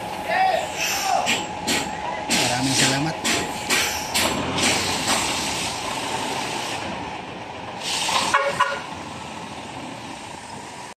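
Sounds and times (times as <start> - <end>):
background vehicle noise: 0.0 - 11.0
brief hiss: 7.8 - 8.5
vehicle horn toots: 8.2 - 8.9.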